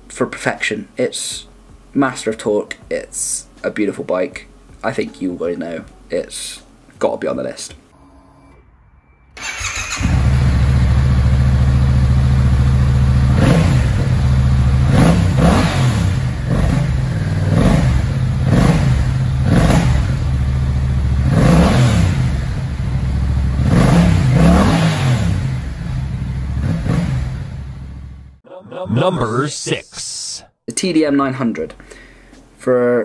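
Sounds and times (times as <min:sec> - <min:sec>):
motorcycle engine revving: 0:09.4 - 0:28.4.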